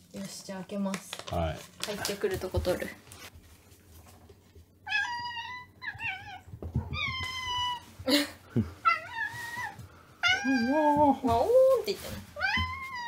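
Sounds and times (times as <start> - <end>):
cat meowing: 4.9 - 7.9, 8.9 - 10.8.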